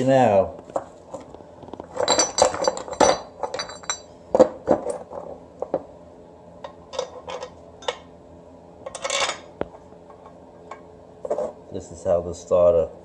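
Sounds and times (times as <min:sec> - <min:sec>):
metal parts clinking: 0:01.9 - 0:04.1, 0:08.9 - 0:09.4.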